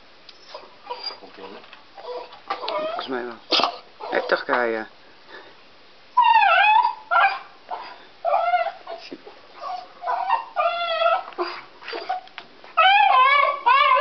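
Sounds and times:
dog whining and yelping: 0:00.4 - 0:04.4, 0:06.2 - 0:14.0.

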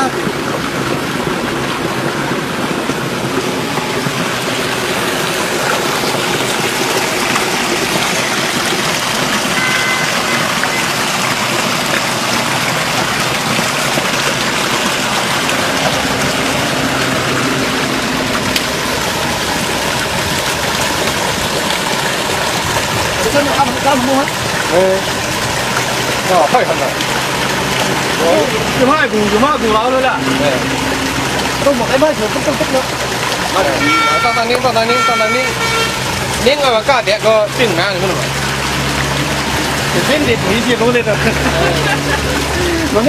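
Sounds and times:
spring water rushing down stream: 0:00.0 - 0:43.0.

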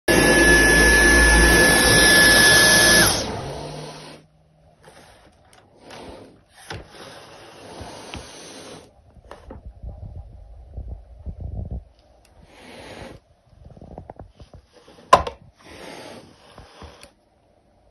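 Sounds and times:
stick vacuum cleaner whining: 0:00.0 - 0:08.9
wild cat hissing: 0:12.4 - 0:13.2.

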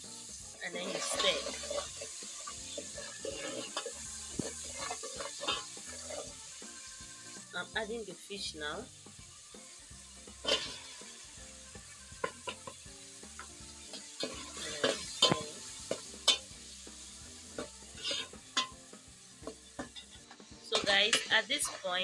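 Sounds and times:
faint sizzle: 0:00.0 - 0:22.0
metal spoon scraping pot: 0:00.7 - 0:06.4, 0:10.4 - 0:11.1, 0:11.9 - 0:12.8, 0:13.8 - 0:16.5, 0:17.6 - 0:18.8, 0:19.4 - 0:22.0.

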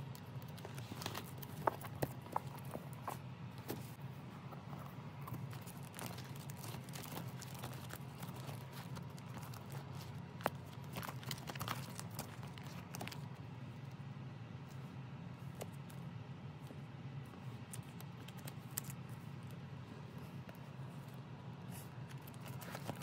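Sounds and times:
plastic binder pages crinkling: 0:00.0 - 0:13.4, 0:17.4 - 0:19.6, 0:20.2 - 0:23.0
steady low hum: 0:00.0 - 0:23.0.

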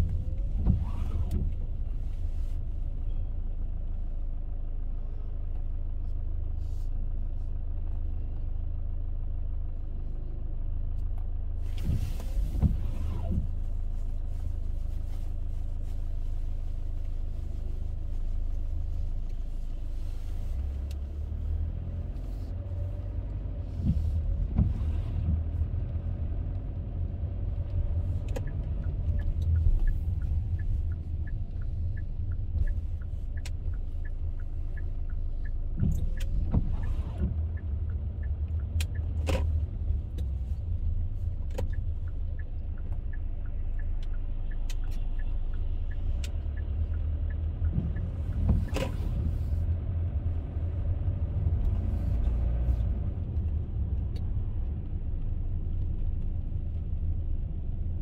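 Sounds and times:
car engine and tyre rumble: 0:00.0 - 0:58.0
light regular ticking: 0:27.4 - 0:49.2.

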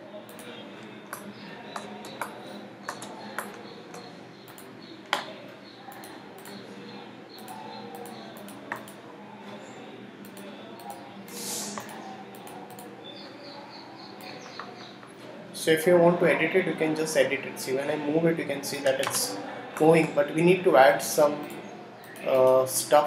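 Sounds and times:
room and computer hum: 0:00.0 - 0:23.0
computer mouse clicks: 0:00.3 - 0:00.5, 0:01.1 - 0:05.3, 0:05.9 - 0:06.6, 0:07.4 - 0:09.0, 0:10.2 - 0:11.0, 0:11.7 - 0:12.9, 0:21.4 - 0:22.3.

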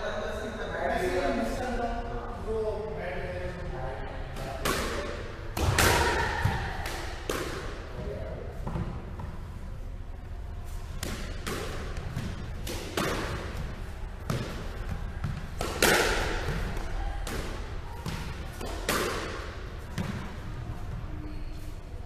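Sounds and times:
squash ball hitting walls: 0:04.4 - 0:07.9, 0:10.9 - 0:20.6.

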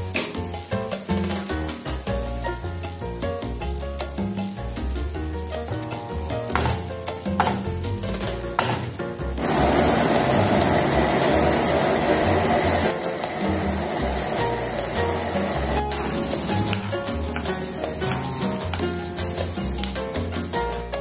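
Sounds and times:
background music with bass line: 0:00.0 - 0:21.0
sauce sizzling in a frying pan: 0:00.0 - 0:21.0.

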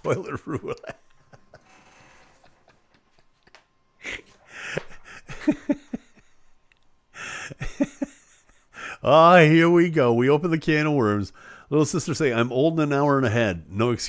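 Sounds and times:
man laughing: 0:00.0 - 0:06.6, 0:07.2 - 0:09.0.

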